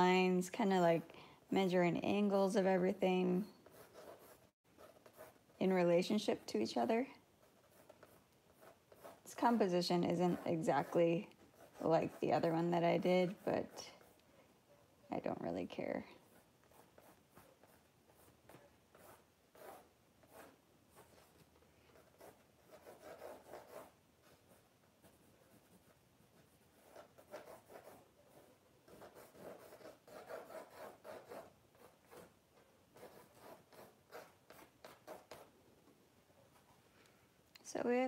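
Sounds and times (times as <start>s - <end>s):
pencil scratching on board: 0.6s - 14.2s, 16.1s - 35.5s.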